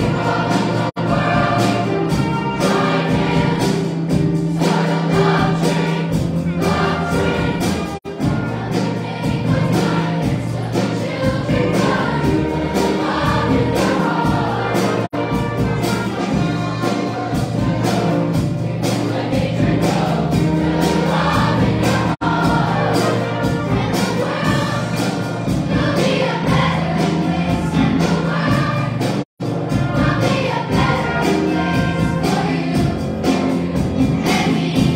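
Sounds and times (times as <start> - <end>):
choir singing: 0.0 - 34.9.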